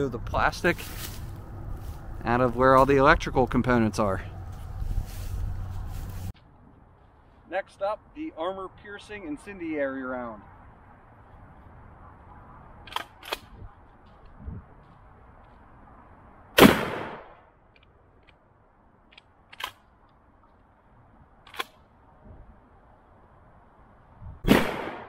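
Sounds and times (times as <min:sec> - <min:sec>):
shotgun shots with echo: 0:16.6 - 0:17.4, 0:24.5 - 0:25.0.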